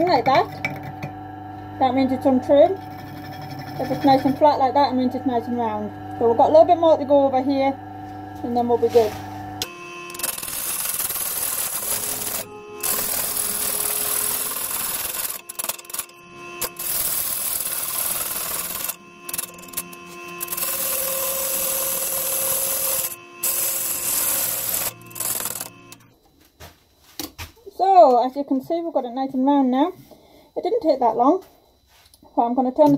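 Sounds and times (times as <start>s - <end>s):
lathe humming: 0.1s - 26.1s
gouge cutting wood hiss: 10.1s - 26.0s.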